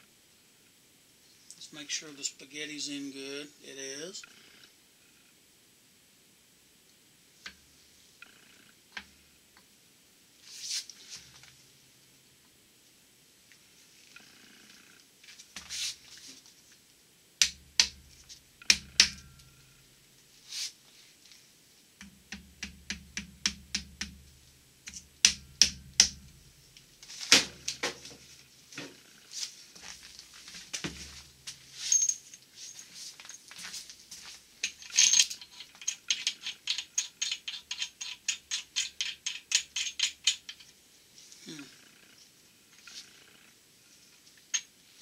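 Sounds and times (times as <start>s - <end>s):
metal clicks and rattles of tools: 34.6s - 40.7s.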